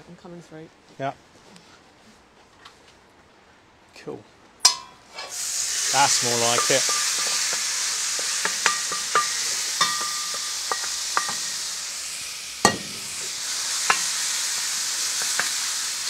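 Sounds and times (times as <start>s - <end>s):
chicken sizzling in a hot pan: 4.6s - 16.0s
wooden spatula scraping a pan: 13.0s - 16.0s.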